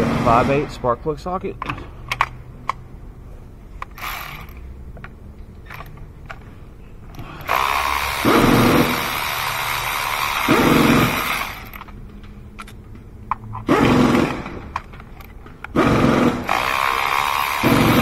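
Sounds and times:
cordless ratchet running: 15.8 - 18.0.

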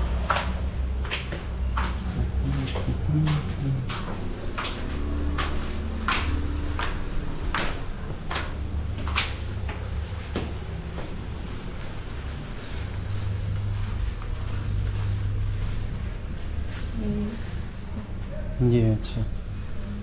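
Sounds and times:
footsteps climbing stairs: 0.0 - 12.2.

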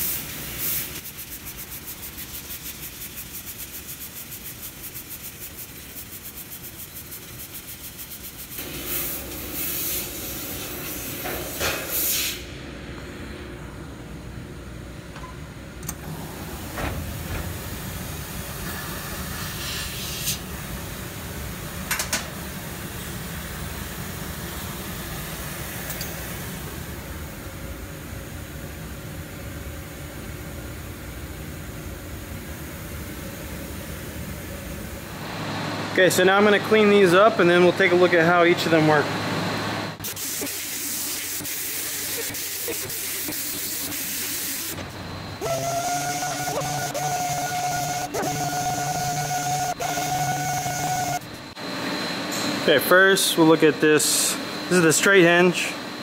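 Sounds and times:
machine noise: 34.2 - 56.0
pneumatic grinder sanding steel: 40.0 - 51.3.

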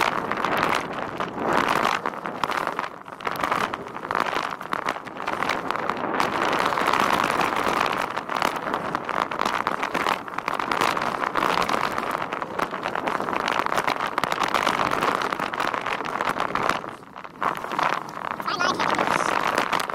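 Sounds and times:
bike rattling over bumps: 0.0 - 19.9
bike tyres on gravel: 0.0 - 19.9.

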